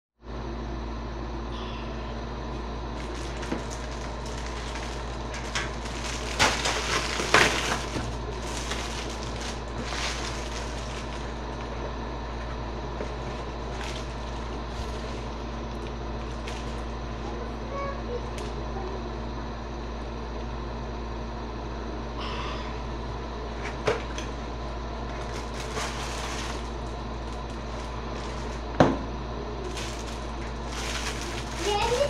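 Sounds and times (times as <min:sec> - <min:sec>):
low background hum: 0:00.2 - 0:32.0
plastic packaging crinkling: 0:02.9 - 0:11.7, 0:13.0 - 0:17.0, 0:25.1 - 0:28.7, 0:29.6 - 0:32.0.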